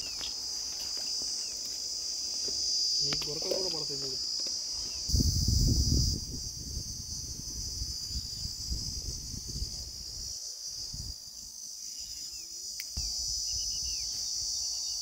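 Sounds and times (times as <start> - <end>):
insects droning: 0.0 - 15.0.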